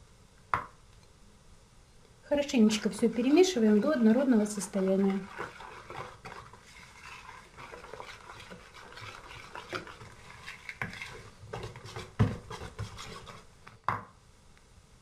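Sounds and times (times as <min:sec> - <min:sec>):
whisk scraping in plastic bowl: 0:02.6 - 0:13.5.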